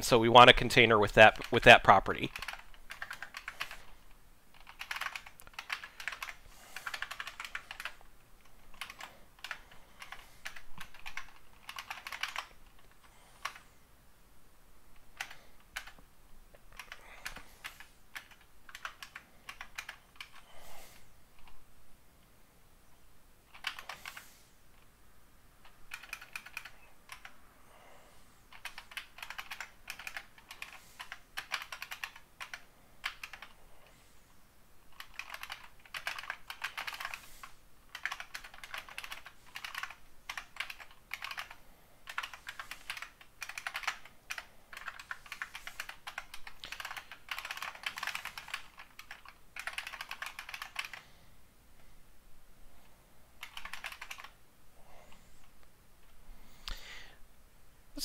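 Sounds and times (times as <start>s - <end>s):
typing on a keyboard: 0.8s - 13.6s, 15.0s - 16.0s, 16.7s - 20.5s, 23.5s - 24.3s, 25.6s - 27.4s, 28.5s - 33.6s, 34.9s - 51.0s, 53.4s - 54.4s.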